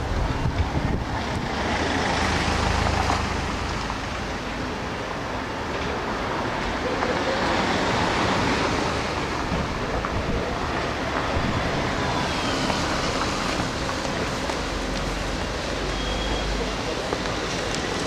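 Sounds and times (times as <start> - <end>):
wind buffeting microphone: 0.0 - 1.9, 9.2 - 12.8
traffic: 0.0 - 18.0.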